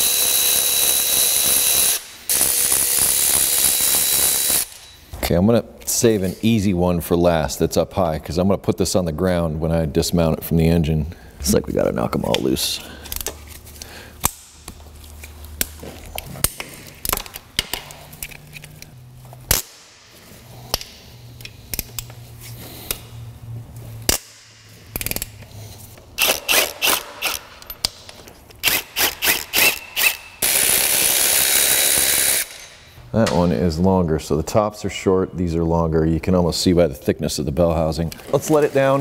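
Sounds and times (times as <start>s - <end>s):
cordless power tool whirring: 0.0s - 4.9s, 28.6s - 32.7s.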